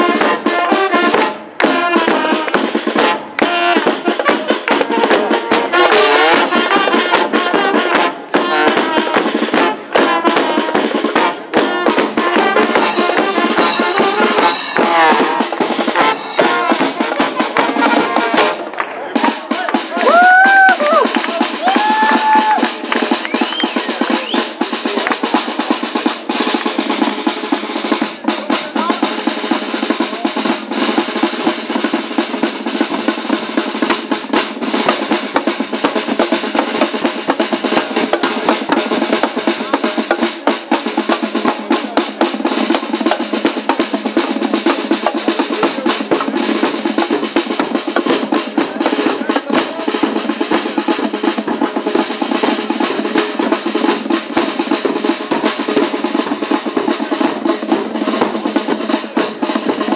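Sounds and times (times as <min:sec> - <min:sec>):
brass band playing: 0:00.0 - 0:59.9
snare drums: 0:00.0 - 0:59.9.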